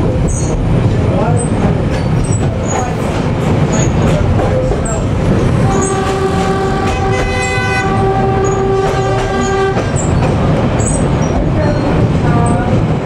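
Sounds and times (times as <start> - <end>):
train rumbling: 0.0 - 13.0
train horn blast: 5.6 - 10.0.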